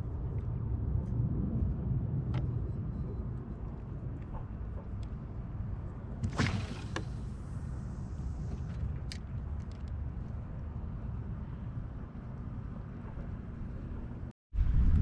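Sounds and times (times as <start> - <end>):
wind rumble on microphone: 0.0 - 15.0
fishing line swishing: 6.2 - 7.4.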